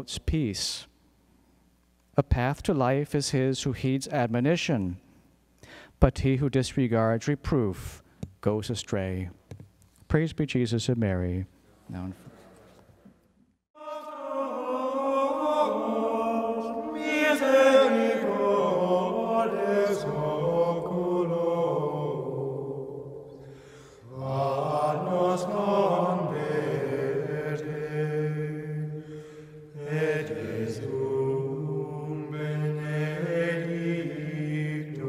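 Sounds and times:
voices singing slow chant: 13.8 - 35.0.

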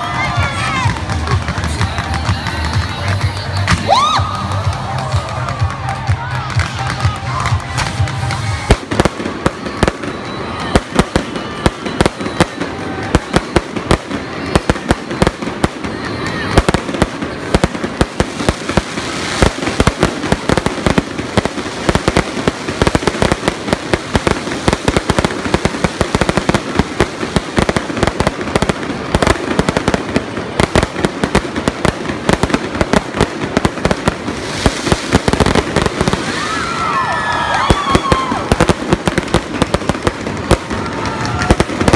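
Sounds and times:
fireworks cracking and banging: 0.0 - 41.9.

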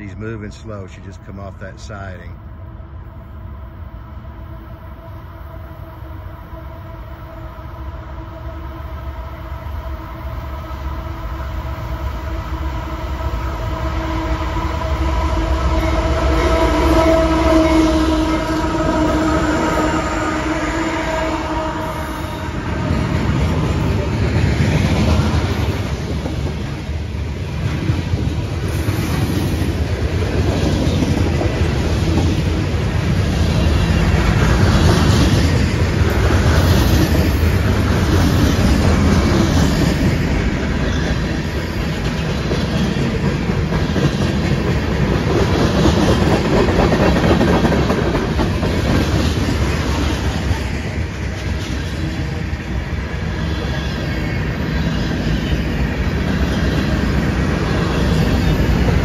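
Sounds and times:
diesel locomotive: 0.0 - 59.0
train wheels clacking on rails: 22.8 - 52.5, 55.0 - 59.0.

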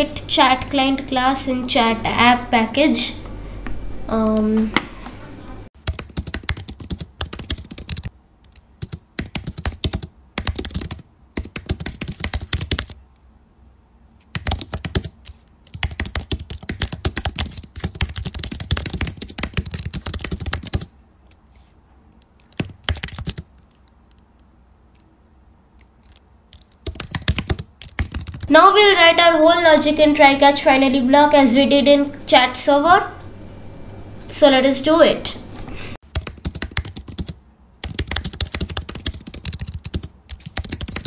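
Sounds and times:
typing on computer keyboard: 5.8 - 13.0, 14.3 - 21.4, 22.1 - 24.2, 25.8 - 28.5, 36.1 - 41.0.

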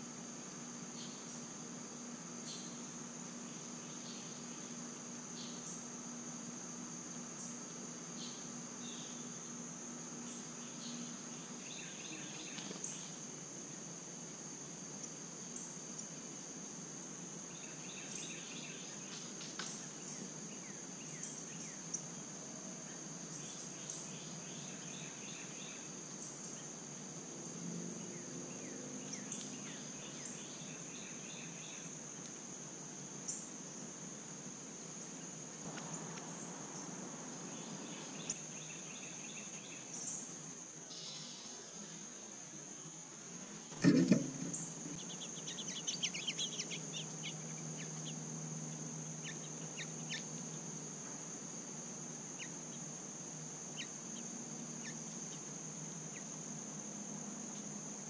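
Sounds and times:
high-pitched insect drone: 34.4 - 58.0.

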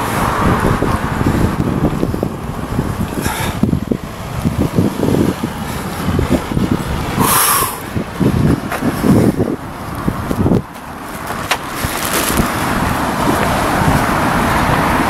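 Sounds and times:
car traffic passing: 0.0 - 15.0
wind buffeting microphone: 0.0 - 15.0.

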